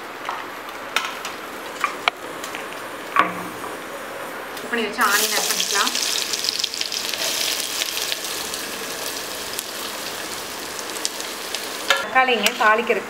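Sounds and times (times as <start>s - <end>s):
onions sizzling in hot oil: 4.6s - 13.0s.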